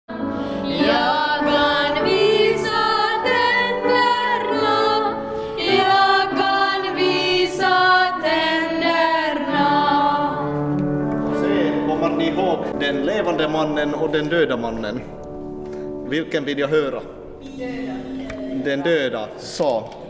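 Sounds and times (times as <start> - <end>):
boys' choir singing: 0.6 - 11.9.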